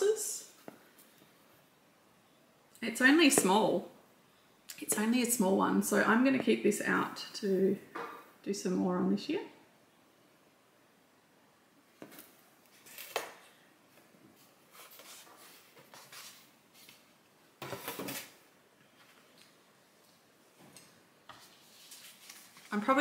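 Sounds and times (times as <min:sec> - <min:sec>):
rustling: 0:11.9 - 0:23.0.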